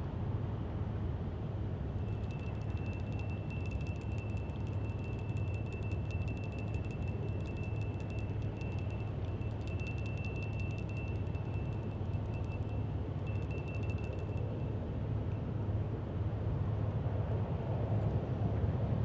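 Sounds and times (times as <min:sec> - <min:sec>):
low steady rumble: 0:00.0 - 0:18.8
high insect trill: 0:02.0 - 0:14.5.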